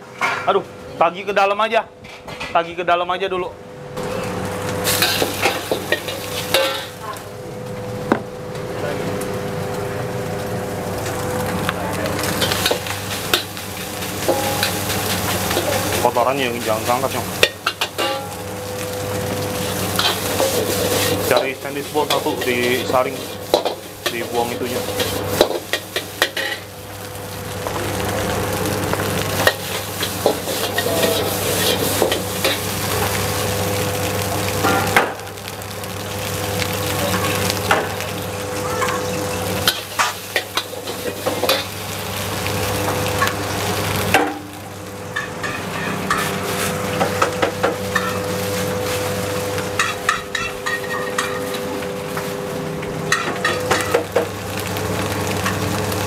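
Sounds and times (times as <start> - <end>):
food sizzling: 4.0 - 56.0
metal spatula scraping a wok: 19.6 - 26.6, 29.5 - 32.7, 45.2 - 46.8.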